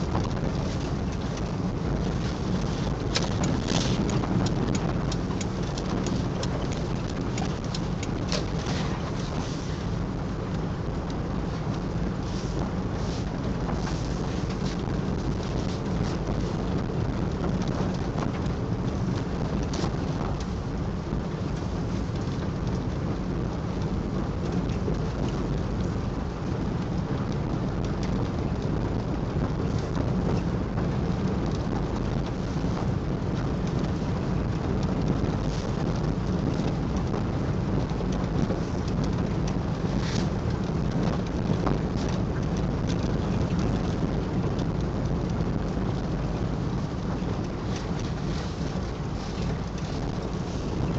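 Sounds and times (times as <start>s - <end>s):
car cabin road and engine rumble: 0.0s - 50.9s
faint crackles: 0.0s - 50.9s.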